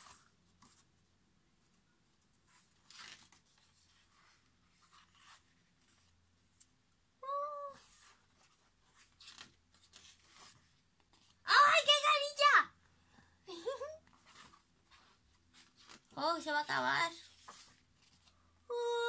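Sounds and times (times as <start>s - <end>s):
paper pages rustling: 0.0s - 1.0s, 1.6s - 6.8s, 7.8s - 11.5s, 14.1s - 18.5s.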